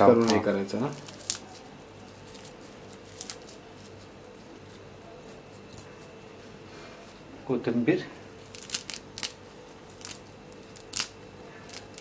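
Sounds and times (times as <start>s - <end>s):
leaves rustling as torn by hand: 0.0s - 4.8s, 8.4s - 12.0s.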